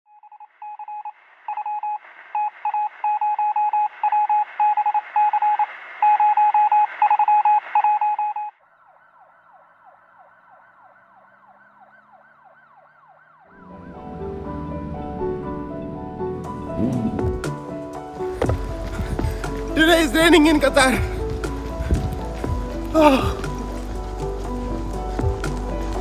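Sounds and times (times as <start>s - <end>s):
electronic beeps: 0.1s - 8.6s
falling electronic sweeps: 13.5s - 18.2s.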